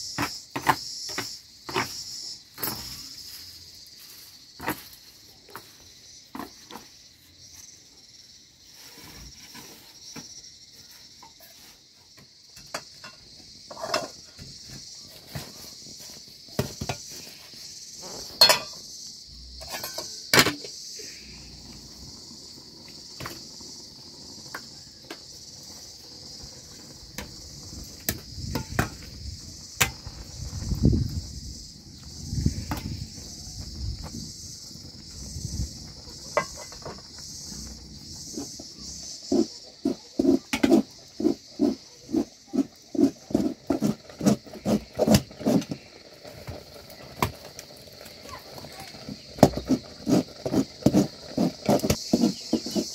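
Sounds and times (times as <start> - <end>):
insects chirring: 0.0 - 52.9
metal pot lid clanking: 18.4 - 18.8.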